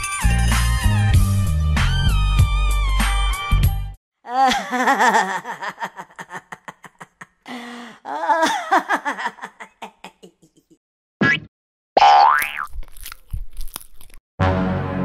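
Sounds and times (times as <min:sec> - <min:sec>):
cartoon gorilla laughing: 0:04.3 - 0:07.4, 0:08.1 - 0:10.8
background music: 0:14.4 - 0:15.0.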